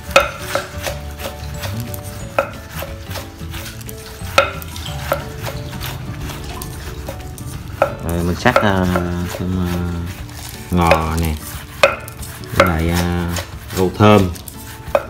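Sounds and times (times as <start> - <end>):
knife cutting leafy greens: 0.0 - 15.0
knife blade knocking board: 0.1 - 3.3, 10.8 - 14.3.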